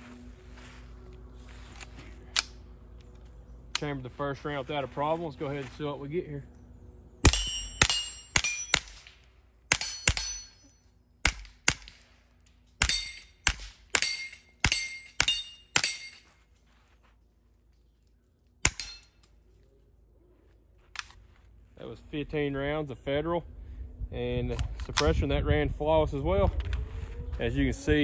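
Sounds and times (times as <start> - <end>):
suppressed pistol shots: 11.2 - 12.0.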